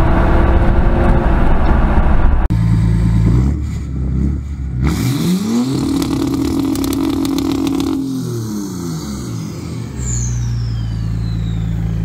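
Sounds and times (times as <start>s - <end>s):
diesel engine revving: 2.5s - 12.0s.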